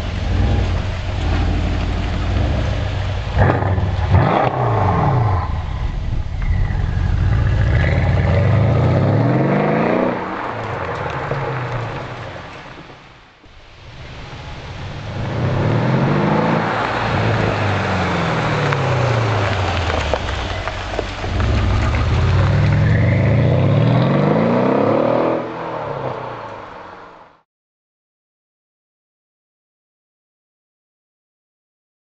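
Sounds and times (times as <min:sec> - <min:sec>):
car engine accelerating hard: 0:00.0 - 0:12.2, 0:14.6 - 0:26.8.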